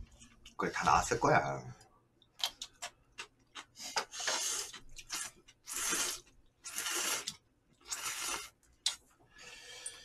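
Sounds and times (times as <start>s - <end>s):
noodles being slurped: 3.6s - 9.0s.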